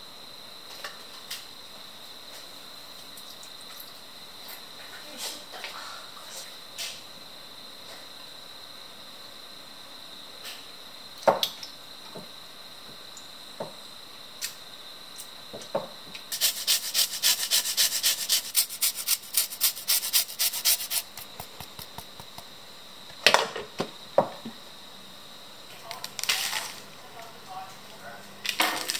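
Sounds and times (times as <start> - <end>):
lemon grating on grater: 16.3 - 22.4.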